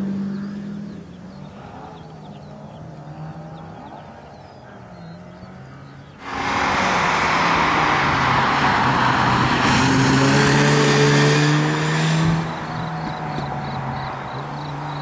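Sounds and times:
rotary engine revving high: 6.2 - 15.0.

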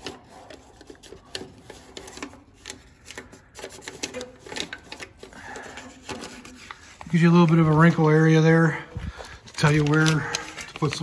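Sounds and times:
paper scraping on sheet metal: 0.0 - 8.4
paper crinkling and rustling: 0.0 - 11.0.

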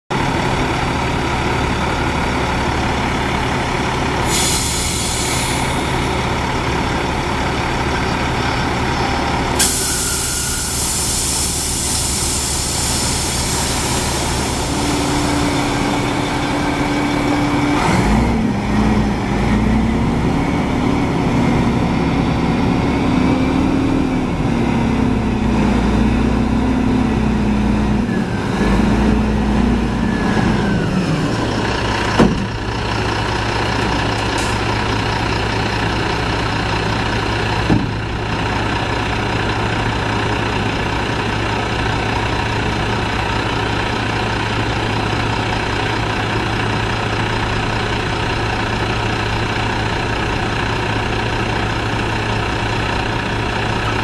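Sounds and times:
diesel truck engine idling: 0.1 - 54.0
hydraulic pump whine: 4.2 - 18.6
compressed air hiss: 4.3 - 6.0, 9.6 - 15.8.

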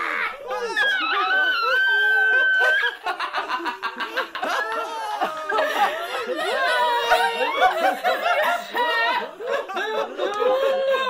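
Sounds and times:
people laughing: 0.0 - 11.0.

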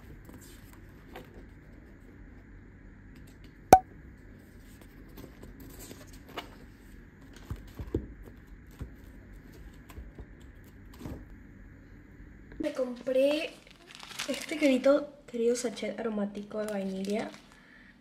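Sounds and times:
paper pages rustling: 13.6 - 14.8.

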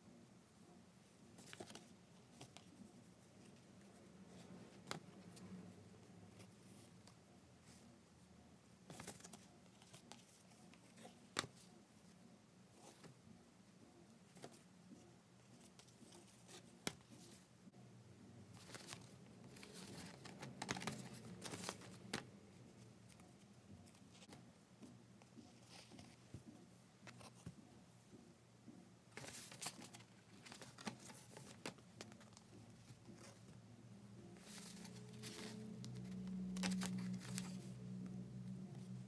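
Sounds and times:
paper and card rustling: 1.2 - 5.5, 8.8 - 12.1, 14.3 - 17.5, 18.5 - 27.6, 29.1 - 33.6, 34.3 - 38.0.

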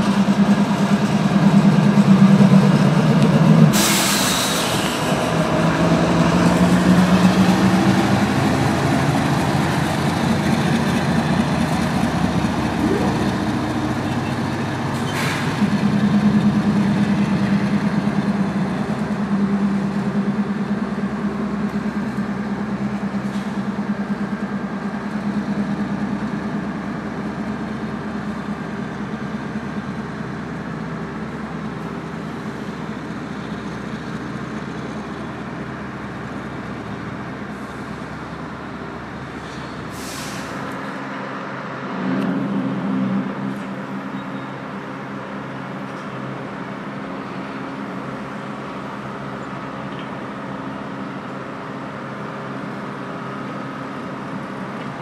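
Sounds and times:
locomotive engine drone: 0.0 - 55.0
short sharp hiss: 39.9 - 40.7.

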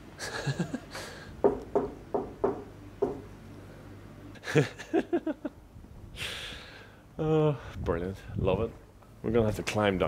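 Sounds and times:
knocking on glass-panelled door: 1.4 - 3.3.

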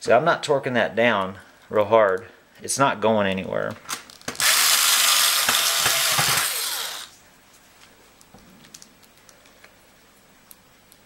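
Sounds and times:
electric screwdriver running: 4.4 - 7.1.

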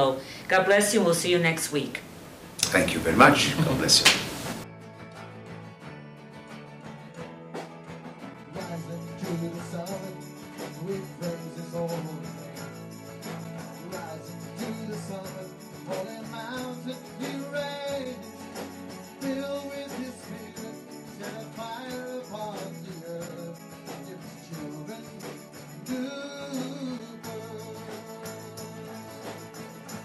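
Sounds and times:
background music with beat: 7.6 - 30.0.

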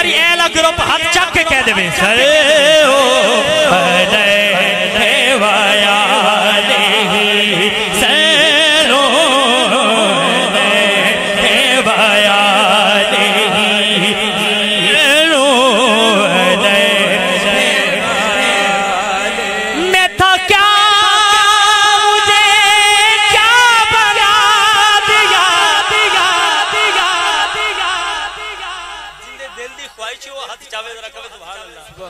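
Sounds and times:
man singing through loudspeaker: 0.0 - 32.0.

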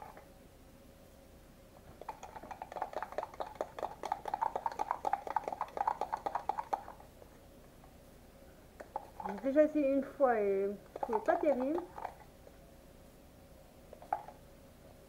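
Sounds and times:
spoon clicking against cup: 10.9 - 12.2.

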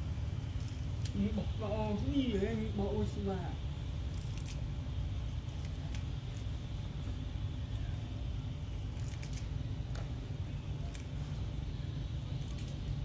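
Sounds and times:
steady low rumble: 0.0 - 13.0
monkey crunching cucumber: 4.0 - 6.6, 8.7 - 10.1, 12.3 - 13.0.

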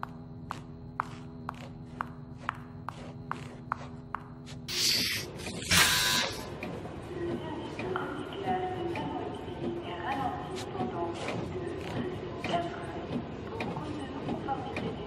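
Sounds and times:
footsteps on hard floor: 0.0 - 4.7.

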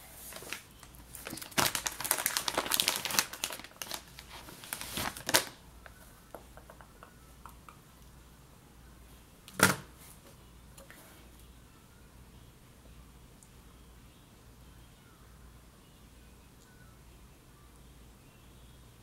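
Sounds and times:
tissue crinkling and rustling: 0.1 - 6.1.

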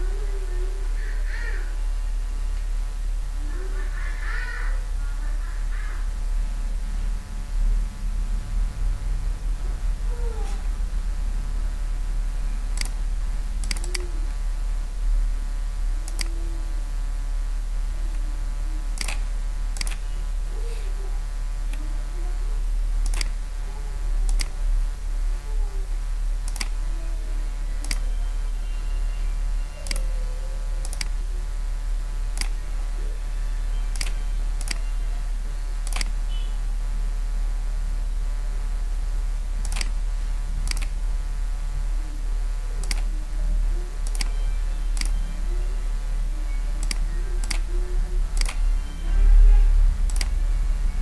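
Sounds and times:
loud electrical hum: 0.0 - 51.0
computer mouse clicking: 12.7 - 13.0, 13.6 - 14.1, 16.0 - 16.3, 19.0 - 20.1, 23.0 - 23.4, 24.3 - 24.6, 26.5 - 26.8, 27.8 - 28.1, 29.8 - 30.1, 30.8 - 31.2, 32.4 - 32.6, 33.9 - 34.9, 35.8 - 36.2, 39.6 - 40.0, 40.6 - 41.0, 42.8 - 43.1, 44.0 - 44.4, 45.0 - 45.2, 46.8 - 47.7, 48.3 - 48.8, 50.1 - 50.4.

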